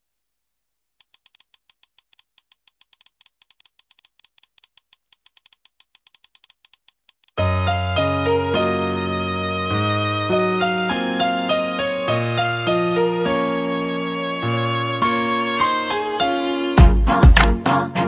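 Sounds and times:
keyboard typing clicks: 1.0s - 7.4s.

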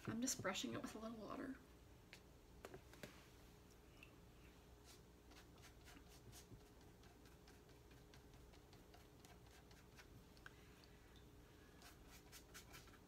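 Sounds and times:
pastry brush dabbing dough: 4.8s - 10.2s, 11.7s - 13.0s.

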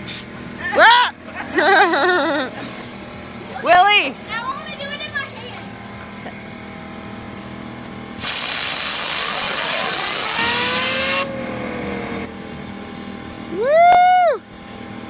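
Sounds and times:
compressed air hissing: 0.0s - 0.3s, 8.2s - 11.3s
fidget spinner whining: 8.9s - 12.3s
short rising tone: 9.2s - 12.3s.

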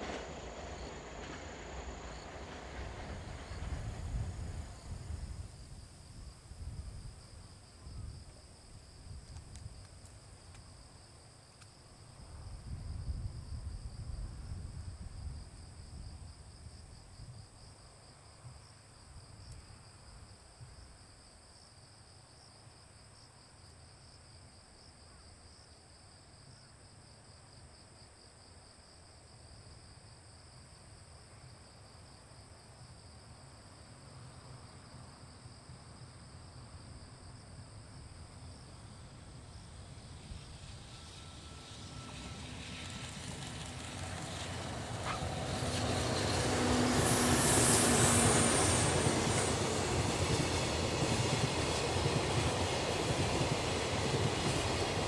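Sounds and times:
insects chirring: 0.0s - 10.8s, 32.8s - 55.0s.

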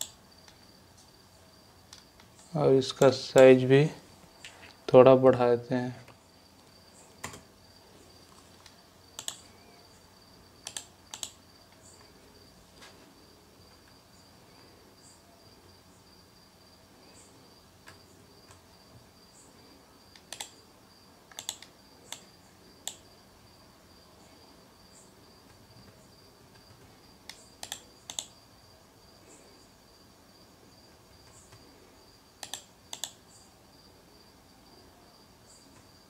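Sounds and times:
computer mouse clicks: 0.0s - 0.6s, 7.2s - 7.4s, 8.6s - 9.5s, 10.6s - 11.4s, 20.1s - 20.6s, 21.3s - 23.0s, 25.4s - 28.4s, 32.4s - 33.2s.

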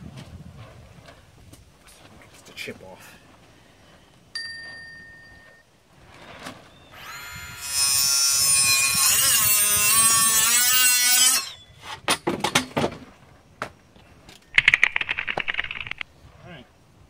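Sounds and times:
power saw cutting fiberboard: 6.9s - 11.6s
sharp clicks or knocks: 14.6s - 16.0s.

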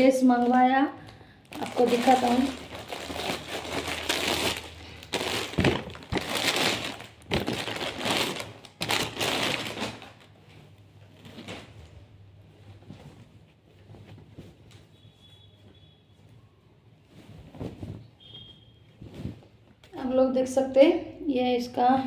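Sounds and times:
plastic packaging crinkling: 1.4s - 10.4s
fabric rustling: 1.5s - 20.2s.

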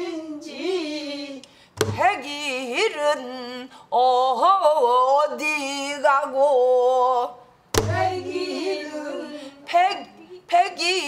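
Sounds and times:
group singing a call and response: 0.0s - 2.7s, 6.6s - 11.0s
woman singing in wavering voice: 0.0s - 11.0s
barrel drum stroke: 7.8s - 8.4s.

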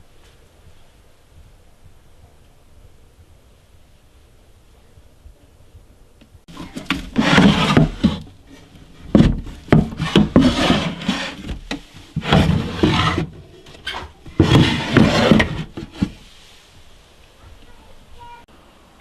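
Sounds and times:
wooden drawers sliding: 6.5s - 16.2s.

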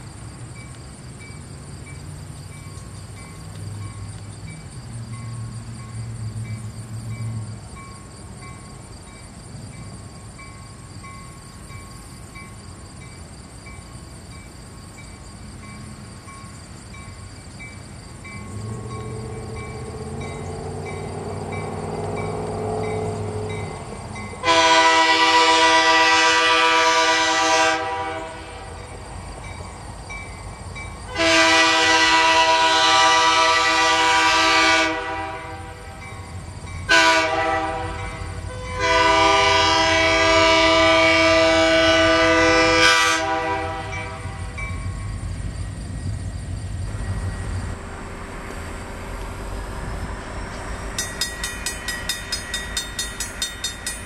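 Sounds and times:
locomotive engine rumble: 0.0s - 54.0s
crossing bell ringing: 0.6s - 26.2s, 35.4s - 39.4s, 43.8s - 45.3s, 50.0s - 54.0s
locomotive horn blasts: 24.4s - 28.8s, 31.1s - 36.0s, 36.9s - 44.6s.

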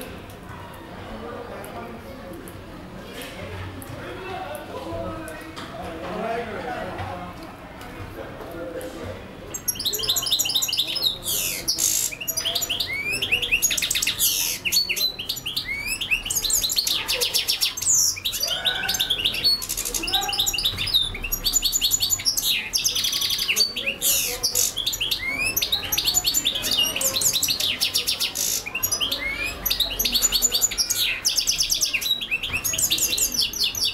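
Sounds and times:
goldfinch twittering song: 9.5s - 33.9s.

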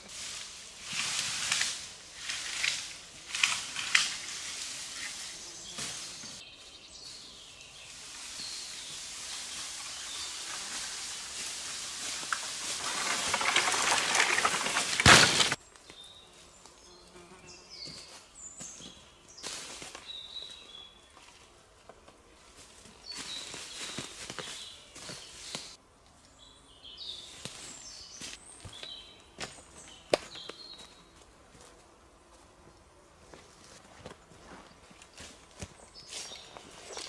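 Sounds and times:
branches crackling: 0.0s - 6.4s, 7.9s - 16.0s, 22.6s - 25.8s, 34.8s - 37.0s
dry branches rustling and scraping: 0.0s - 6.4s, 7.9s - 15.6s, 22.4s - 25.8s, 33.6s - 37.0s
footsteps on dry leaves: 7.8s - 15.6s, 17.8s - 20.6s, 22.4s - 25.8s, 33.4s - 37.0s.

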